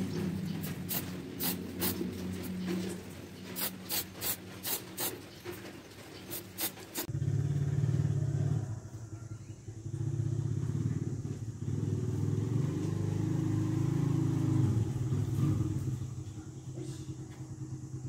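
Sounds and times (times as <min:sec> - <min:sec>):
spray can hissing puffs: 0:00.0 - 0:07.1
engine drone: 0:00.0 - 0:18.0
low motor hum: 0:00.0 - 0:18.0.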